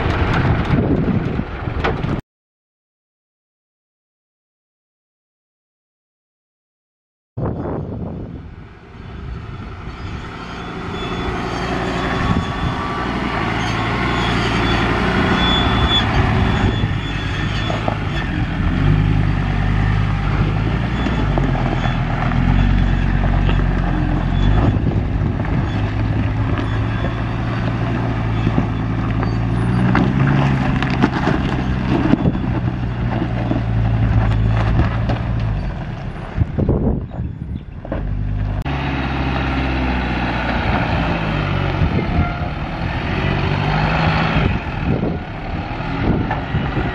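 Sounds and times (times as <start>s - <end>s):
truck engine pulling under load: 0.0s - 2.2s, 8.3s - 46.9s
tyres crunching over loose dirt: 9.7s - 46.9s.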